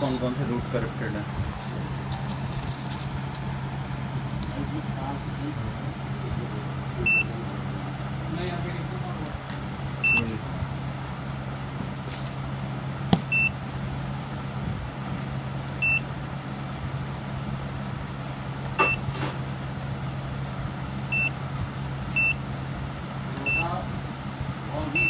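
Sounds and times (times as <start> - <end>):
short high keypad beeps: 0.0 - 0.2, 18.8 - 19.0
steady low hum: 0.0 - 25.0.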